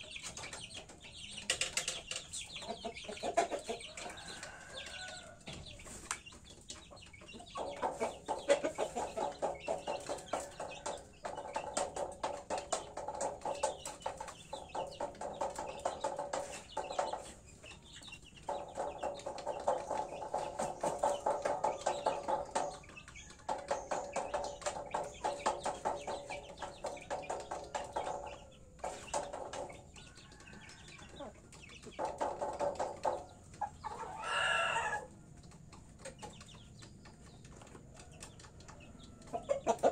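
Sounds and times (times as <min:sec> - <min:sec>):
chickens clucking: 0:00.0 - 0:39.9
chicken squawk: 0:33.8 - 0:35.1.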